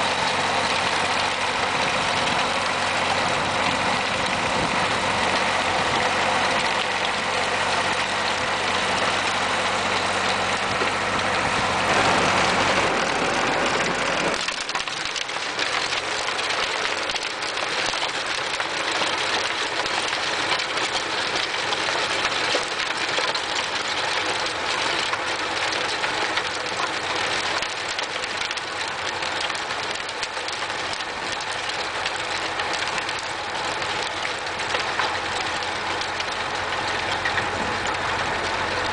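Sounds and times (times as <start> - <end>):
rotary tiller in soil: 0.0 - 38.9
tractor engine running: 0.0 - 38.9.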